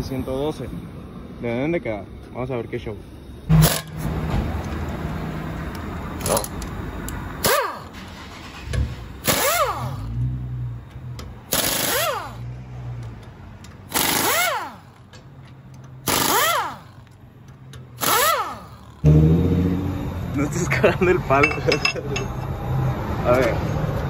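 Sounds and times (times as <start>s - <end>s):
pneumatic impact wrench rattling: 3.5s - 4.1s, 6.2s - 6.8s, 7.4s - 10.2s, 11.2s - 12.4s, 13.6s - 15.2s, 15.8s - 19.1s.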